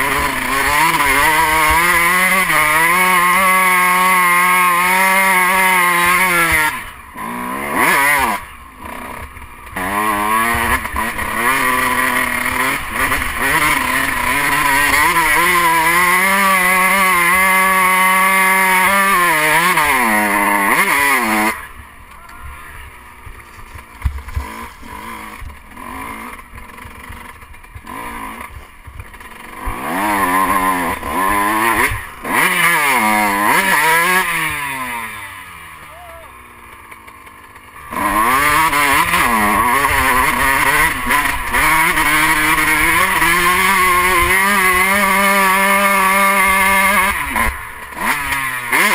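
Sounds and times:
dirt bike engine revving: 0:00.0 - 0:48.9.

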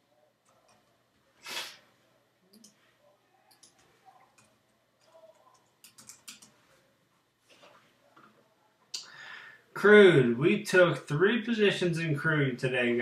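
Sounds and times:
computer keyboard typing: 0:02.5 - 0:02.8, 0:03.5 - 0:06.6.

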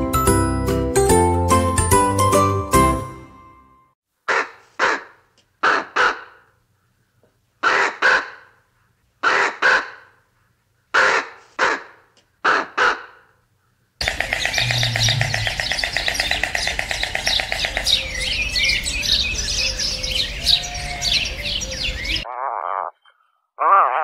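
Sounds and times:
bird's harsh calls: 0:04.3 - 0:08.6, 0:09.2 - 0:10.2, 0:10.9 - 0:13.3, 0:14.0 - 0:23.3
chorus of chirping birds: 0:14.0 - 0:23.3.

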